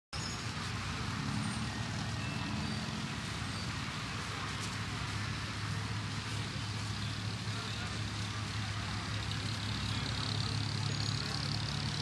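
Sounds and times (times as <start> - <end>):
murmur of a crowd: 4.0 - 12.0.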